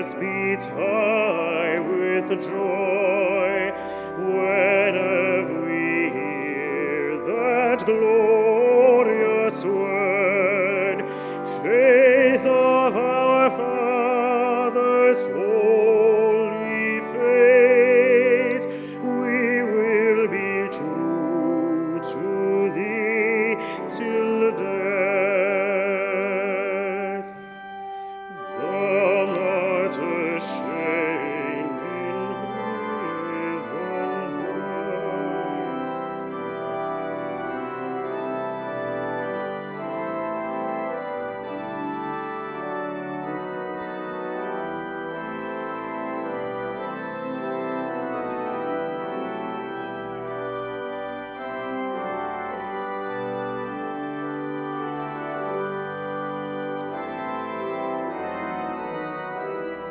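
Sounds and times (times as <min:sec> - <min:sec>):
person singing with vibrato: 0:00.0 - 0:27.6, 0:28.3 - 0:38.4
church organ chords: 0:00.0 - 0:59.9.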